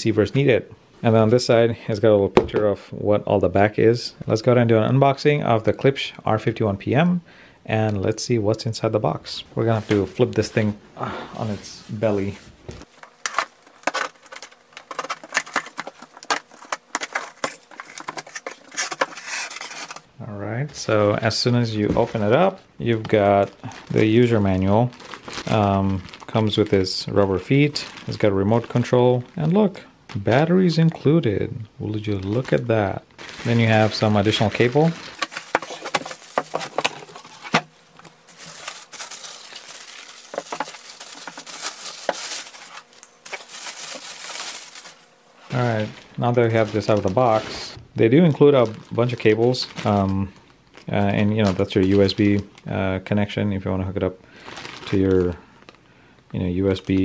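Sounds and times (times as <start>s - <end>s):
plastic bag crinkling and rustling: 11.4s - 20.1s, 20.8s - 57.0s
cardboard box scraping and crinkling: 13.2s - 20.0s.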